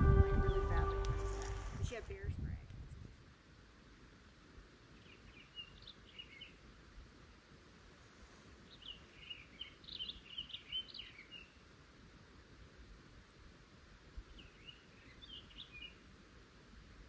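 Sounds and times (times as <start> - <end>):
background hiss: 0.0 - 17.0
small birds chirping: 4.9 - 6.6, 8.7 - 11.6, 14.2 - 16.0.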